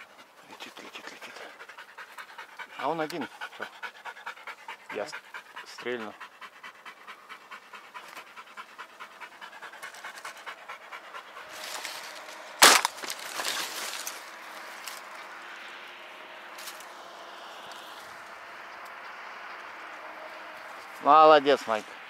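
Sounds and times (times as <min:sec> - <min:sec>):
dog panting: 0:00.0 - 0:12.3.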